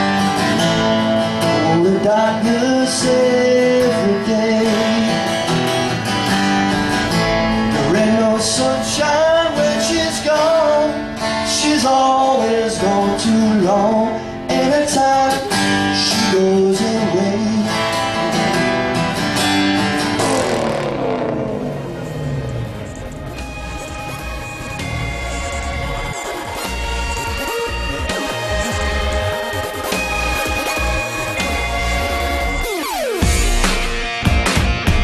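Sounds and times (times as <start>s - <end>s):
acoustic guitar: 0.0s - 35.0s
person singing: 1.5s - 5.4s, 7.7s - 18.8s.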